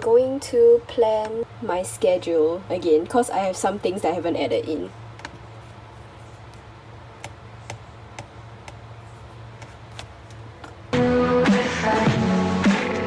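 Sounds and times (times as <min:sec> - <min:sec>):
low steady hum: 0:00.0 - 0:12.4
laptop keyboard typing: 0:07.2 - 0:10.8
loud music: 0:10.9 - 0:13.0.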